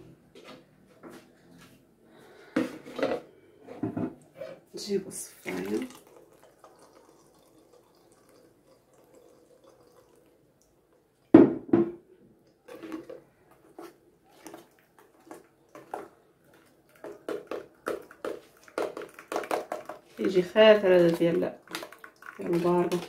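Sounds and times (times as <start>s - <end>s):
juice pouring into strainer: 5.2s - 11.3s, 12.5s - 23.0s.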